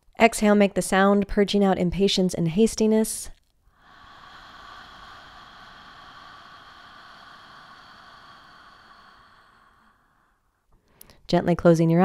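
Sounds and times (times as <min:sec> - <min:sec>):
woman whispering breath out: 0:03.7 - 0:11.2.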